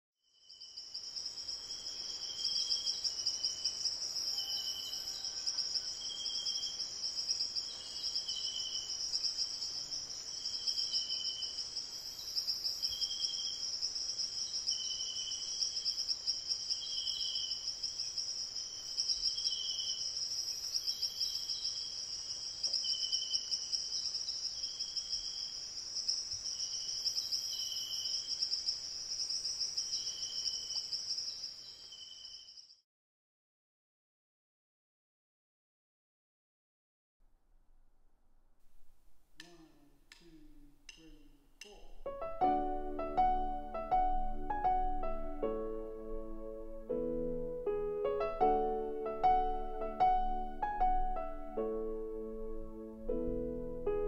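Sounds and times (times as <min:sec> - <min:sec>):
insect chirps: 0:00.2 - 0:32.8, 0:48.4 - 0:53.9
crickets trilling: 0:00.4 - 0:32.8.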